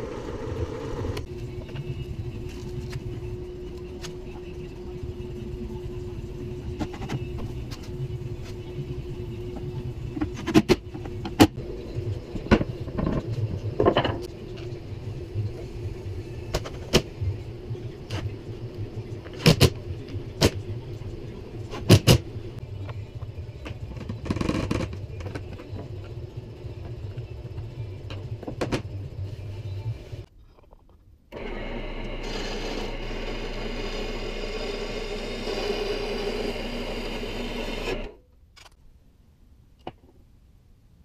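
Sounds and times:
bandsaw cutting metal: 31.4 - 38.1.

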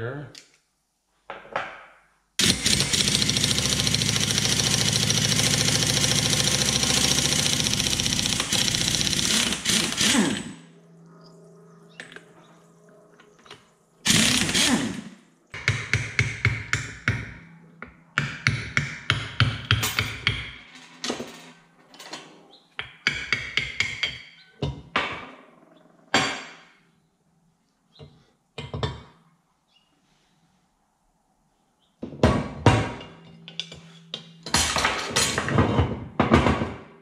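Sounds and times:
impact wrench hammering: 2.4 - 10.6, 14.1 - 20.6.

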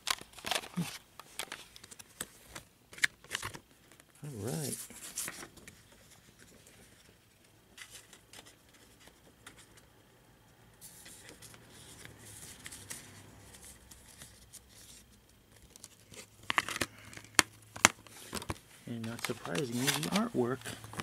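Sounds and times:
paper insert rustling: 0.0 - 9.8, 10.8 - 21.0.

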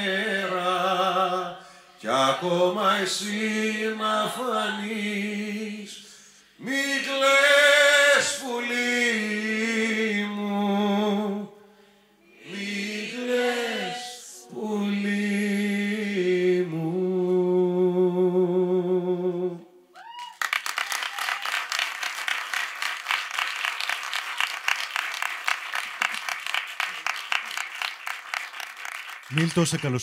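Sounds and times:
audience clapping: 20.2 - 30.0.

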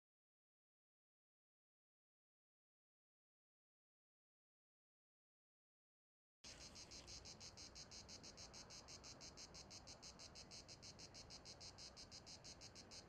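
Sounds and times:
insects chirping: 6.5 - 13.0.

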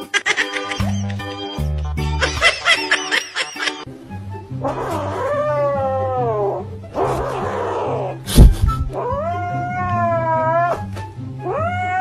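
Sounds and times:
background music with low tone: 0.0 - 12.0
kitten yowling: 4.6 - 6.6, 8.8 - 10.8, 11.4 - 12.0.

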